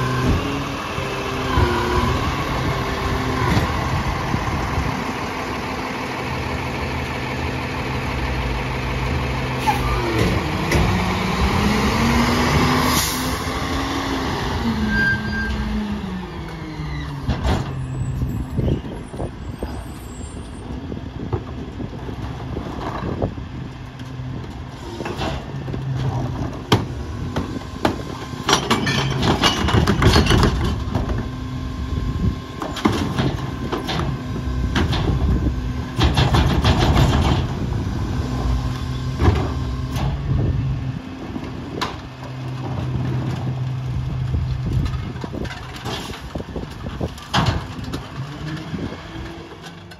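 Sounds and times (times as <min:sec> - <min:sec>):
garbage truck idling: 0:00.6 - 0:11.1
trash clattering into hopper: 0:25.0 - 0:31.4, 0:41.3 - 0:49.9
carts knocking against hopper: 0:32.6 - 0:37.7.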